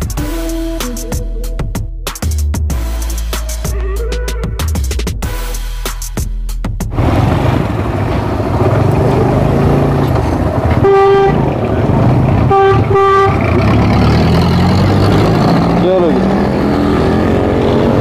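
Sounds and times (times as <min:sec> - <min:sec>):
background music: 0:00.0 - 0:06.9
motorcycle engine: 0:06.9 - 0:18.0
horn honking: 0:10.6 - 0:14.2.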